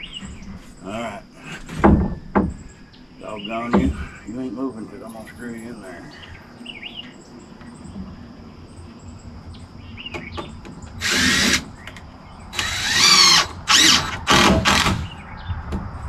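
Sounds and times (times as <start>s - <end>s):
power drill driving screws: 11.0s - 11.7s, 12.6s - 15.1s.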